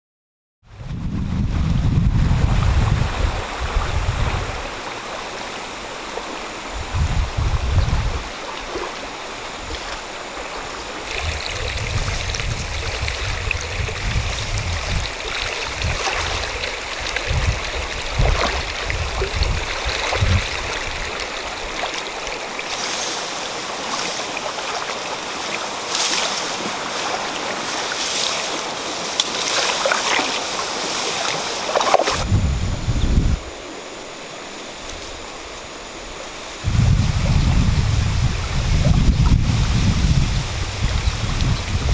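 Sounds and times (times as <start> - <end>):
wind buffeting microphone: 0.7 - 5.0, 6.5 - 22.5, 31.2 - 33.7, 34.9 - 41.9
tall grass rustling: 0.7 - 41.9
river water rushing: 2.6 - 32.3, 33.4 - 36.9.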